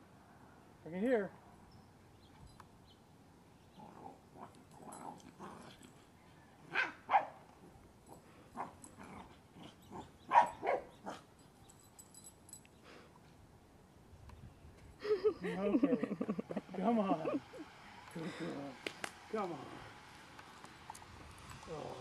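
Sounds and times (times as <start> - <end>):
dog barking: 6.7 - 7.4, 10.0 - 11.2.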